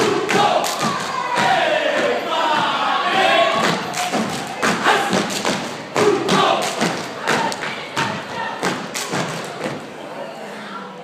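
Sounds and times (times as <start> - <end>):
people shouting: 0.0 - 5.3, 6.0 - 8.8
stomping and clapping: 0.2 - 9.8.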